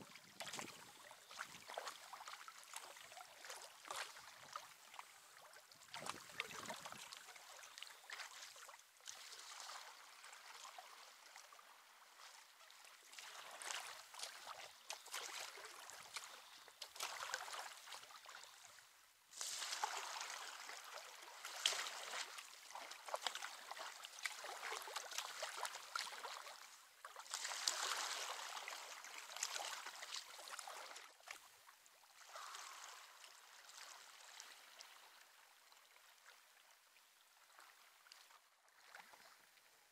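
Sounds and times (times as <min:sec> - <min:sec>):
paddle strokes splashing: 0:00.0 - 0:11.2, 0:13.0 - 0:31.5
water rushing along hull: 0:00.0 - 0:18.8.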